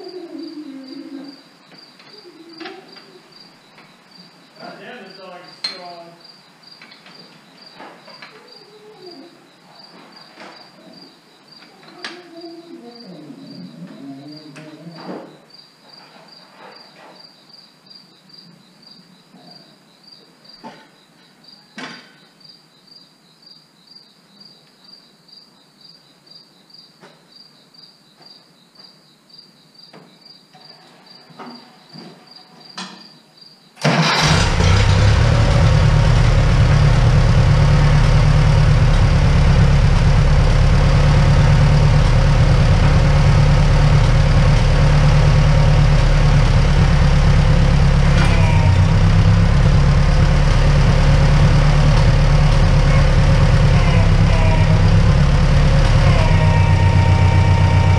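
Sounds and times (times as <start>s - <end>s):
crickets chirping: 0.0s - 34.4s, 35.4s - 56.0s
tractor engine running: 33.8s - 57.9s.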